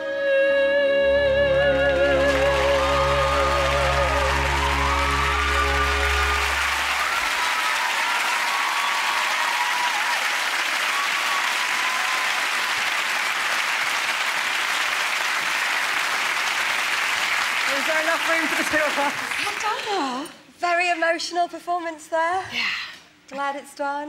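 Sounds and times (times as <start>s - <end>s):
held orchestral chord: 0.9s - 7.2s
audience applauding: 1.7s - 20.0s.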